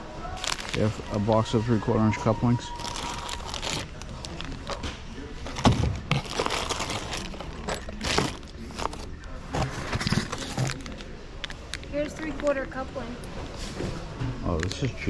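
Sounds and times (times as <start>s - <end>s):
plastic bags crinkling: 0.2s - 12.0s
cardboard rustling: 2.7s - 11.1s.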